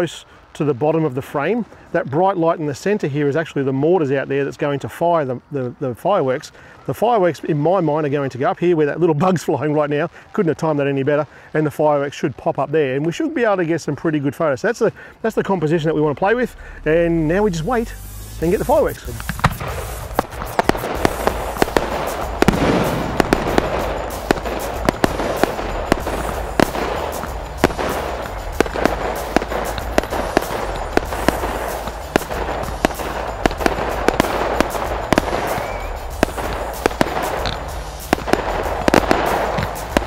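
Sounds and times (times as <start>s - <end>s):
fireworks crackling hiss: 0.0s - 14.0s, 14.6s - 40.0s
firework shells bursting: 17.3s - 40.0s.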